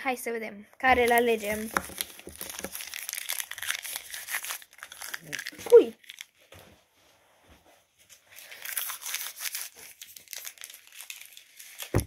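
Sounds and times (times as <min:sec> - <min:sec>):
card packets crinkling: 0:01.0 - 0:06.4, 0:08.3 - 0:12.0.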